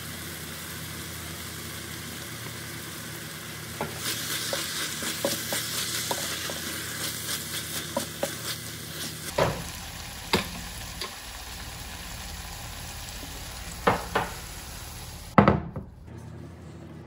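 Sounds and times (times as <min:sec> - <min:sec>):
food sizzling in hot oil: 0:00.0 - 0:15.4
utensil knocking against pan: 0:13.8 - 0:14.4.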